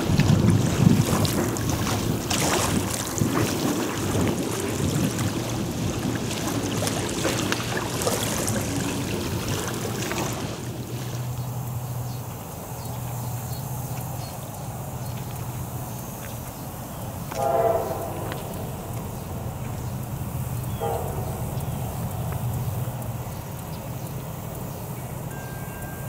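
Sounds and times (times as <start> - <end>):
wind buffeting microphone: 0.0 - 25.3
steady low hum: 0.0 - 26.0
locomotive horn blast: 17.3 - 19.5, 20.6 - 22.5.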